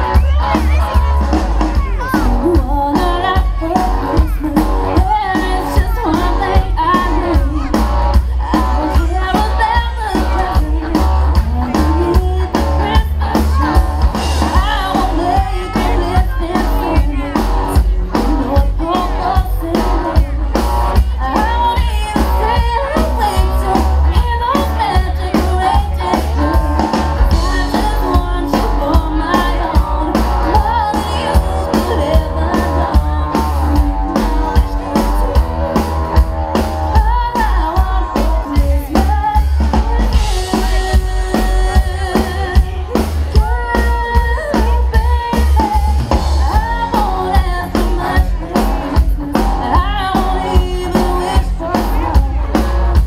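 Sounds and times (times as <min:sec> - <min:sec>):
drum kit beat: 0:00.0 - 0:53.0
guitar: 0:00.0 - 0:53.0
person singing: 0:00.0 - 0:53.0.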